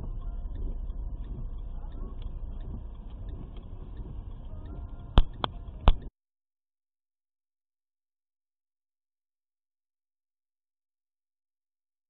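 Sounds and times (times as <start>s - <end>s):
car cabin rumble: 0.0s - 6.1s
sharp clicks: 0.2s - 6.1s.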